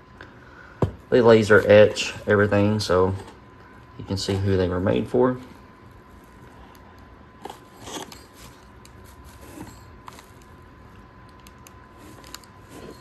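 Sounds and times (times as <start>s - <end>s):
plastic packaging crinkle: 7.4s - 13.0s.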